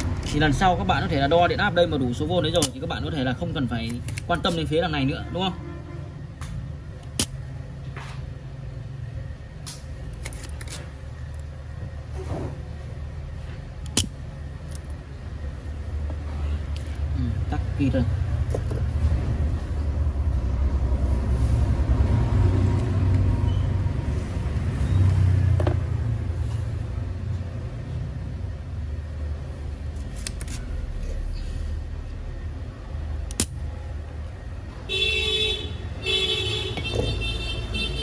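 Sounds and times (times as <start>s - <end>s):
road traffic rumble: 0.0s - 38.0s
desoldering pump snapping: 2.4s - 4.8s, 6.4s - 7.5s, 9.6s - 11.5s, 13.8s - 15.0s, 29.9s - 30.7s, 33.2s - 33.7s
vehicle horn honking: 34.9s - 38.0s.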